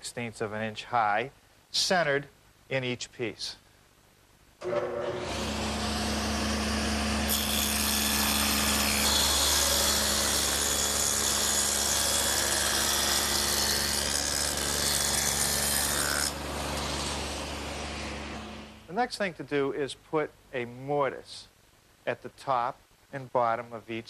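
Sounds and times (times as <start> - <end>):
table saw humming: 4.6 - 18.8
saw cutting groove in wood: 4.8 - 18.8.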